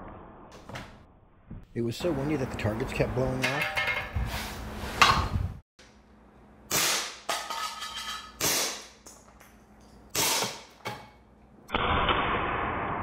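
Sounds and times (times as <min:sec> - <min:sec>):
air pistol shots popping: 0:08.4 - 0:09.0.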